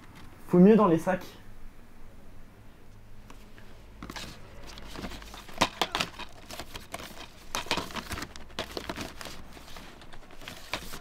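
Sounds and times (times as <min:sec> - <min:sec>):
plastic bag rustling: 0:04.0 - 0:11.0
plastic cases clacking together: 0:04.0 - 0:11.0.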